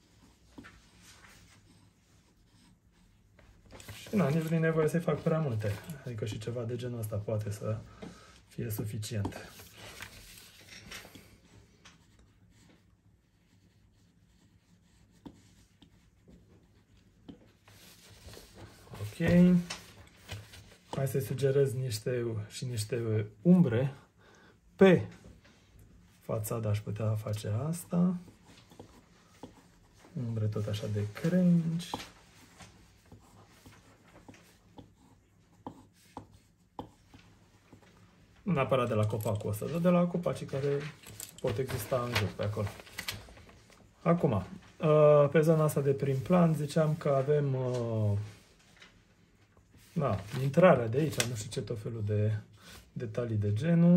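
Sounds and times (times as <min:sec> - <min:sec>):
pen scratching on paper: 0:00.0 - 0:06.0, 0:12.0 - 0:19.2, 0:28.0 - 0:32.0, 0:32.8 - 0:37.8.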